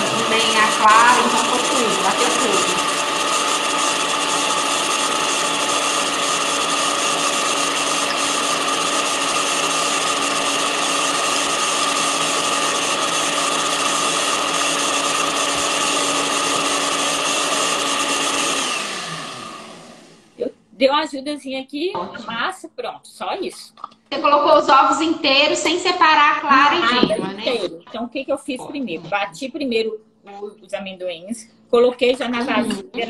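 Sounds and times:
blender motor running: 0.0 - 20.4, 32.4 - 33.0.

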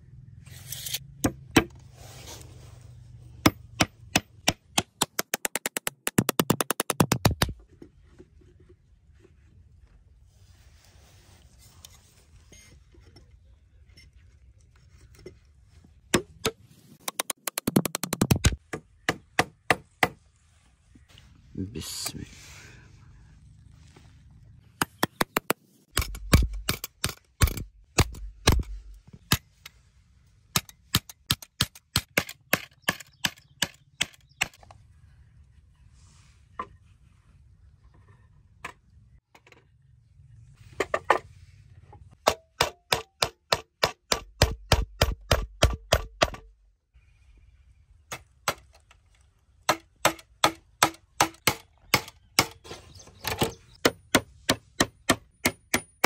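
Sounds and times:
hammer driving nails: 3.4 - 7.6, 53.3 - 56.0.

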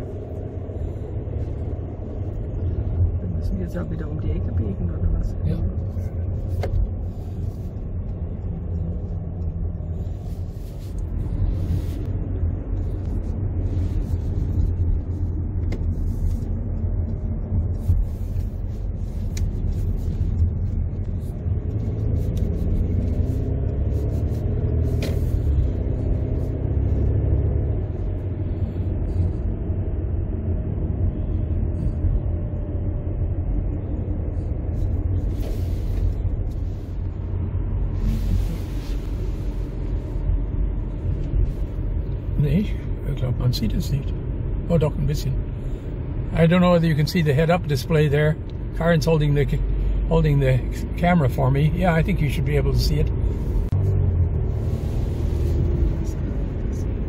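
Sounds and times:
car interior road rumble: 0.0 - 57.0
engine note rising and falling: 21.4 - 30.3.

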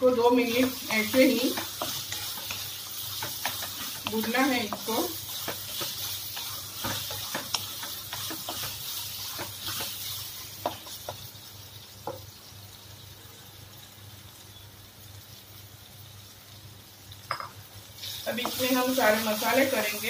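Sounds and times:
food sizzling in oil: 0.0 - 20.0
spatula scraping a wok: 0.3 - 11.2.

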